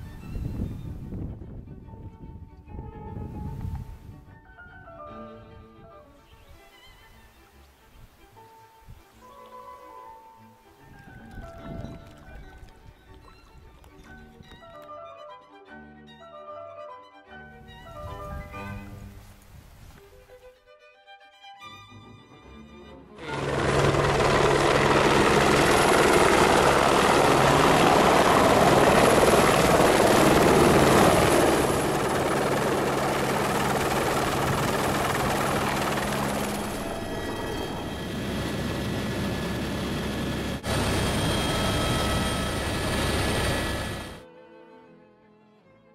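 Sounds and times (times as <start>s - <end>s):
helicopter rotor drone: 23.2s - 44.2s
thin turbine whine: 23.2s - 44.2s.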